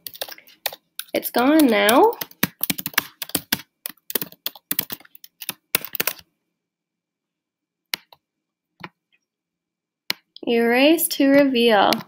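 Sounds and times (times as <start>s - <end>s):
computer keyboard typing: 0.0s - 6.3s.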